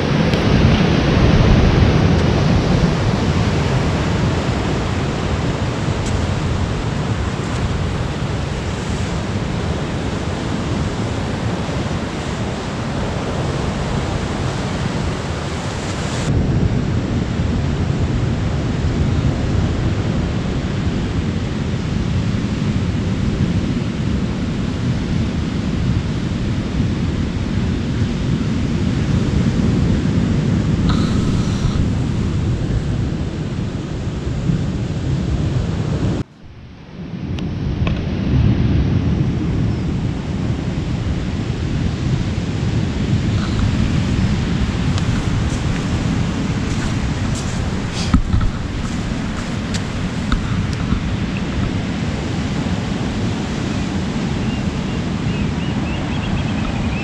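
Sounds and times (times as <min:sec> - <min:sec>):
wind on microphone: 0:00.0 - 0:57.0
surf breaking on rocks: 0:30.8 - 0:34.3, 0:42.7 - 0:54.4.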